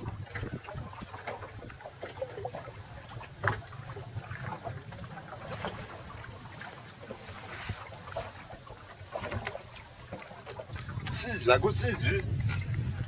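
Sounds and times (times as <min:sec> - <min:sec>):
water lapping on hull: 0:00.0 - 0:13.0.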